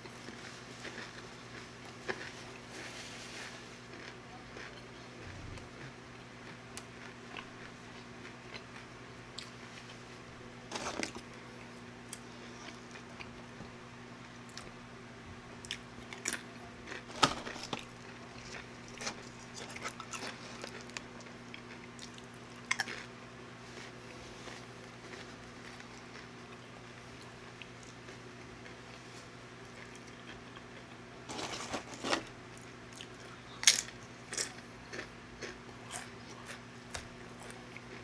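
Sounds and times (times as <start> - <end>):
person chewing crunchy food: 0.0 - 10.0, 10.7 - 13.4, 15.6 - 38.0.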